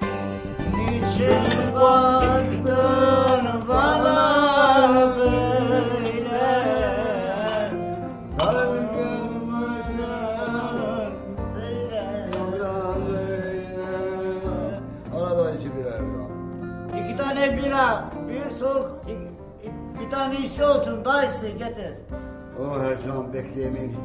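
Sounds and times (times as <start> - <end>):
song with singing voice: 0.0 - 21.2.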